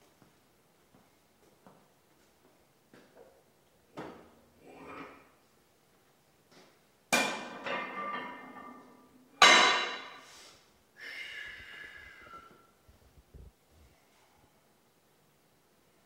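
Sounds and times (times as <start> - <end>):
gym weights clanking: 7.2 - 10.2.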